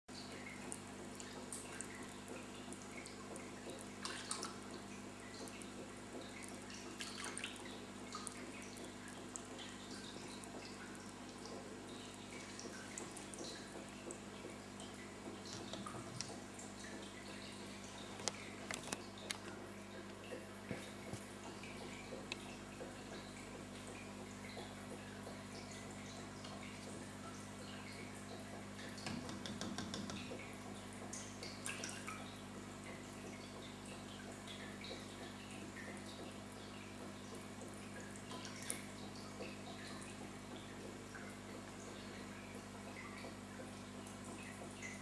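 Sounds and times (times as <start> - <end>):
aquarium water trickling and dripping: 0.1 - 45.0
filter pump humming: 0.1 - 45.0.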